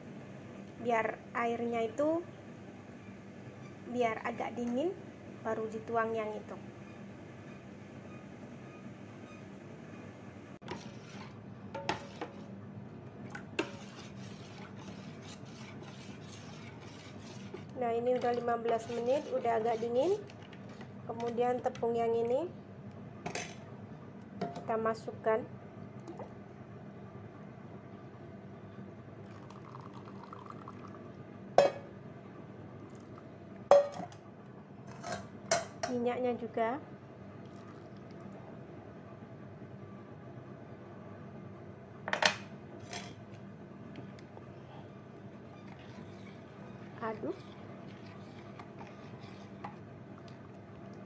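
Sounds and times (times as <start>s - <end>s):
spoon stirring in metal bowl: 10.6s - 12.6s, 13.3s - 21.4s, 45.5s - 50.6s.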